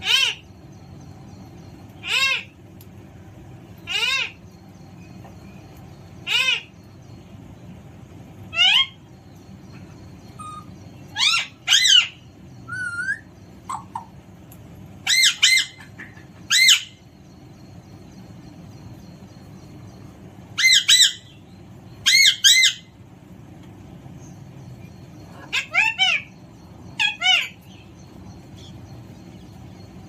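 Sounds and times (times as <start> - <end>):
parrot squawking: 0.0 - 0.4, 2.0 - 2.6, 3.9 - 4.4, 6.2 - 6.7, 8.5 - 9.0, 10.4 - 14.1, 15.0 - 17.0, 20.6 - 21.3, 25.4 - 26.3, 27.0 - 27.6.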